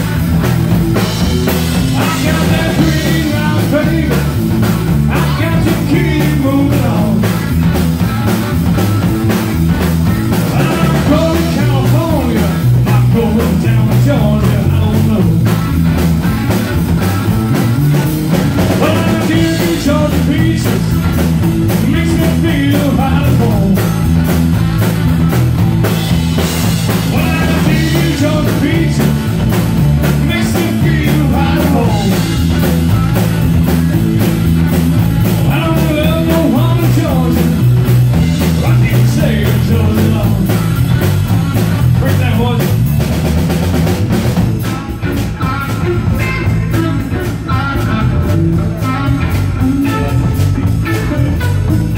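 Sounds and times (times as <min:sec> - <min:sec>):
drum kit beat: 0:00.0 - 0:51.9
electric bass: 0:00.0 - 0:51.9
electric guitar: 0:00.0 - 0:51.9
man singing: 0:01.7 - 0:07.6, 0:10.3 - 0:15.6, 0:18.5 - 0:24.1, 0:26.9 - 0:32.7, 0:35.2 - 0:40.8, 0:41.9 - 0:42.9, 0:44.6 - 0:51.9.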